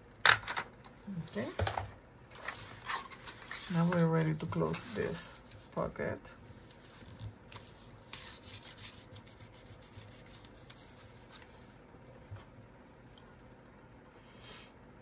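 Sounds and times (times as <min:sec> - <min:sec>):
paper rubbing and rustling: 0:02.4 - 0:05.9, 0:06.5 - 0:11.5.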